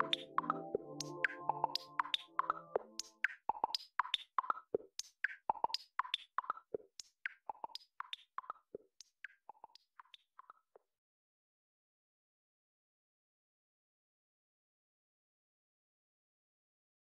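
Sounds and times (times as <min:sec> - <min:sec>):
clicky percussion hits: 0:00.0 - 0:06.3.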